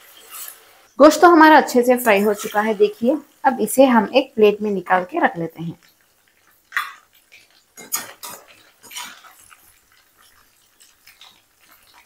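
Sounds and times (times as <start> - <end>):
metal spoon scraping a metal pan: 0.0 - 0.7, 2.0 - 2.9, 7.8 - 12.0.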